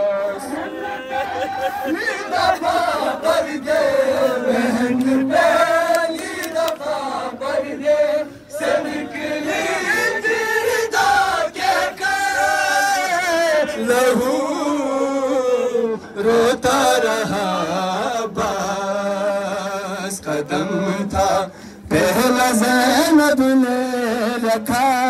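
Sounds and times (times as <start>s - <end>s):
men chanting a lament: 0.0s - 25.0s.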